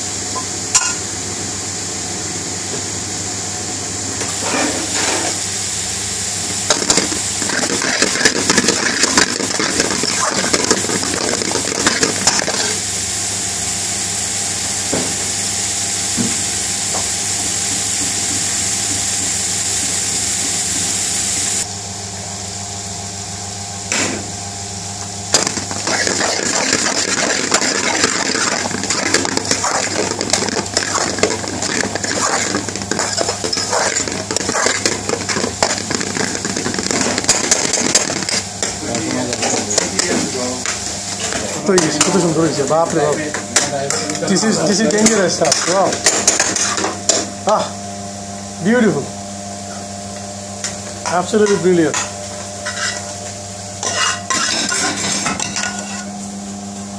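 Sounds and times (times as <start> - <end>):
vegetables sizzling in a wok: 0.0 - 56.8
steady low hum: 0.0 - 56.9
metal spoon scraping pan: 25.9 - 35.4, 52.7 - 53.0, 53.8 - 56.1.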